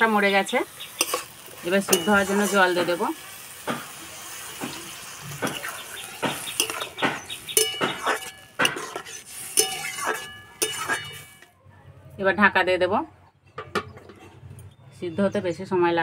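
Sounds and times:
water hissing in hot pan: 0.0 - 11.4
metal spatula scraping pan: 1.0 - 3.2, 5.3 - 11.5.

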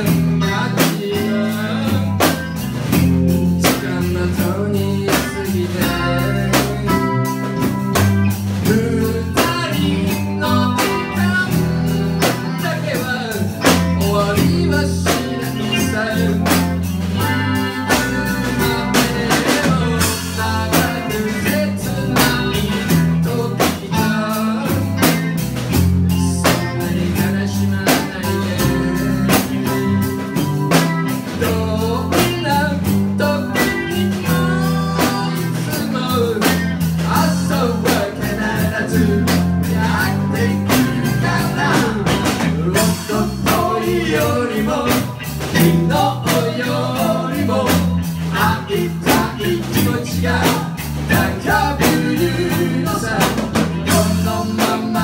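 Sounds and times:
bass guitar: 0.0 - 55.0
drum kit beat: 0.0 - 55.0
electric guitar: 0.0 - 55.0
man singing: 0.0 - 55.0.

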